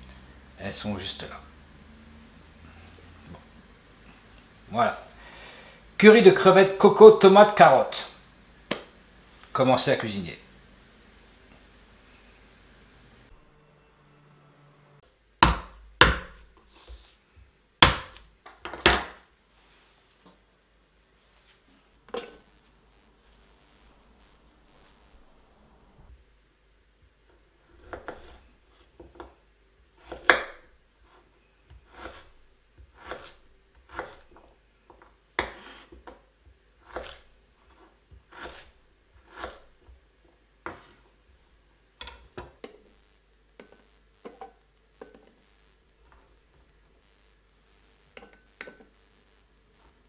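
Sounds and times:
knife chopping on wooden board: 15.4 - 16.4, 17.8 - 19.2, 27.8 - 28.4, 30.0 - 30.7, 31.7 - 34.4, 35.4 - 36.2, 36.8 - 37.2, 38.2 - 40.0.

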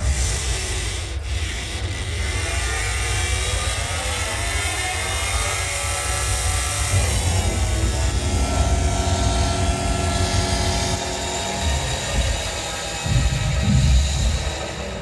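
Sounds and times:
deep steady rumble: 6.9 - 15.0.

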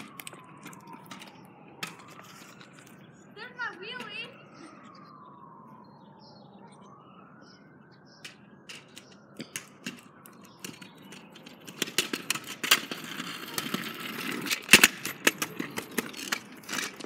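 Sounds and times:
scooter wheels clicking over joints: 0.0 - 3.0, 8.2 - 17.0.

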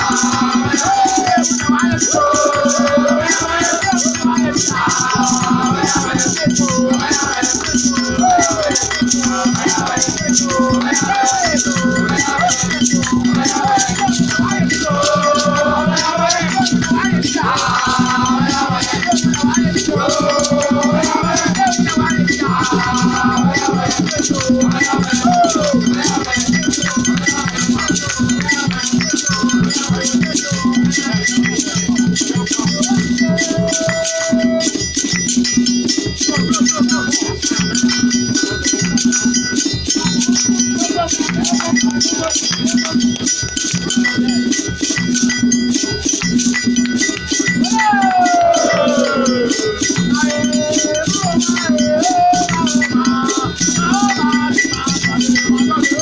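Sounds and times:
several voices singing: 0.0 - 34.9, 47.1 - 56.0
shaken rattles and percussion: 0.0 - 56.0.

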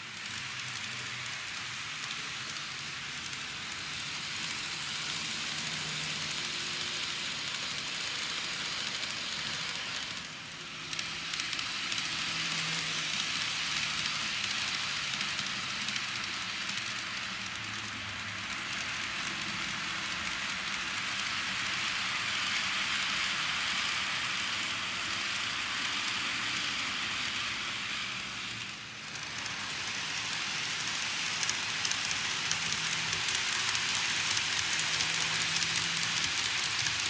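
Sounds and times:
model train wheels rattling: 0.0 - 37.0
wheels clicking over rail joints: 28.6 - 37.0.

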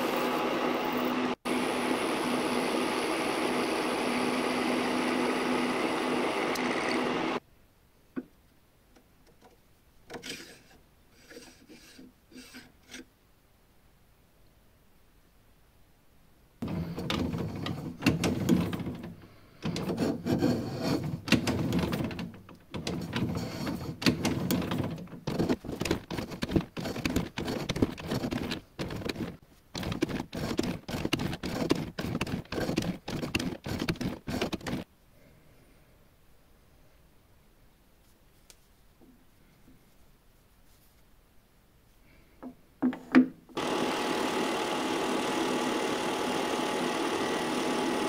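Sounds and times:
rasp strokes on workpiece: 10.2 - 13.1, 19.6 - 22.2, 22.8 - 34.9.

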